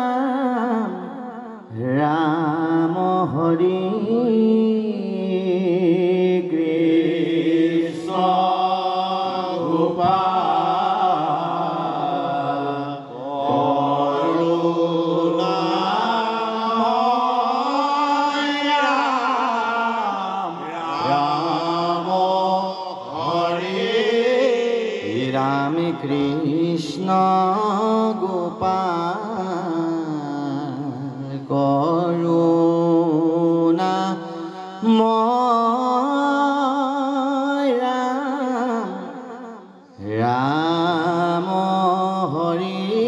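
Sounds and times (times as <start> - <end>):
men chanting together: 6.5 - 26.6.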